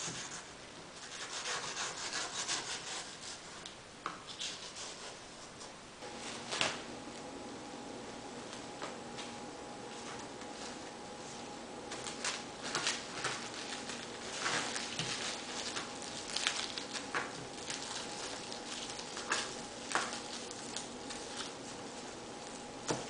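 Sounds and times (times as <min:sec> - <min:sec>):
plastic cling wrap crinkling: 0:11.9 - 0:23.0.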